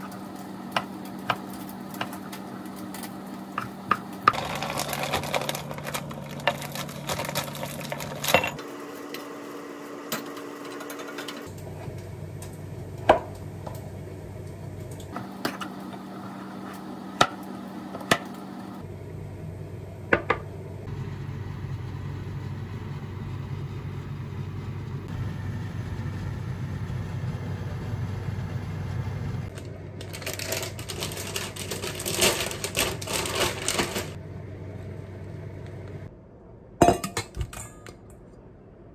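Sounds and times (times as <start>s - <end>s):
steady low hum: 11.3s - 38.9s.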